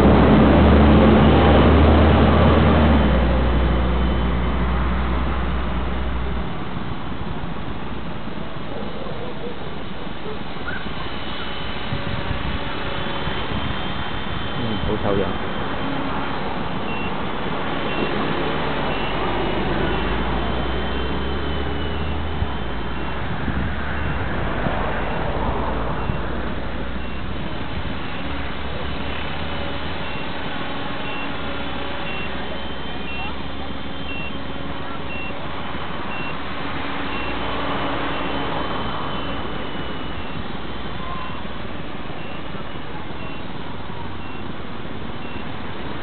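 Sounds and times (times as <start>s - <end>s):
wind rumble on microphone: 11.8s - 14.9s, 23.2s - 26.7s
short high beep: 32.0s - 33.4s, 34.0s - 34.4s.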